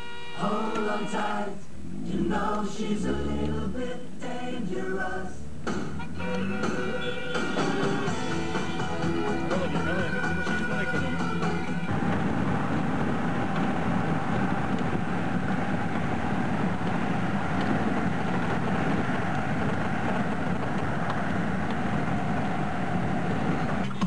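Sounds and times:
car engine and road noise: 1.7 - 24.0.

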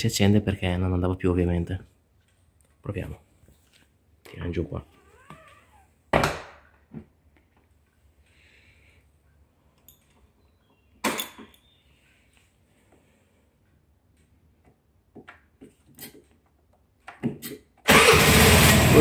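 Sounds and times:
scooter engine starting and running: 17.8 - 19.0.

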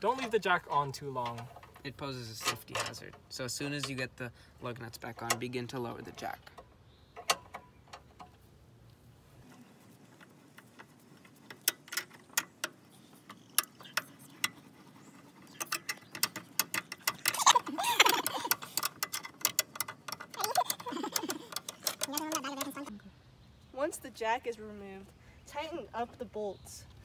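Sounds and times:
scissor jack metallic clicks: 15.6 - 22.9.

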